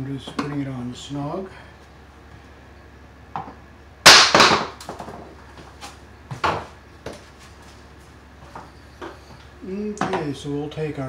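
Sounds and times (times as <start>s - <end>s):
sharp knock: 4.1s - 4.8s.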